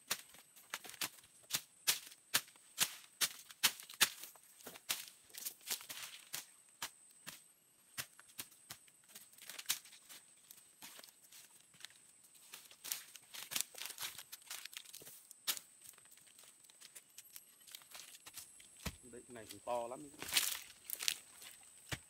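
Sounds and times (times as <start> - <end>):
hand tool chopping into soil: 0.0 - 10.2, 16.9 - 21.2
twigs crackling: 7.9 - 22.0.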